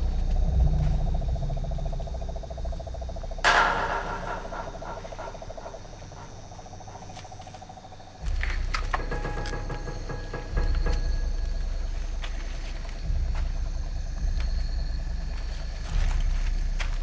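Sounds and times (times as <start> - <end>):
insects trilling: 0.0 - 17.0
low rumble: 0.0 - 17.0
sharp ringing crash: 3.4 - 6.8.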